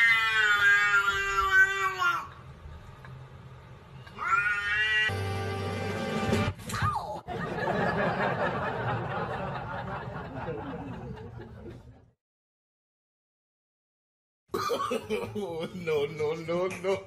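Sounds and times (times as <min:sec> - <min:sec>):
people chuckling and laughing: 0:07.3 - 0:12.1, 0:14.9 - 0:17.0.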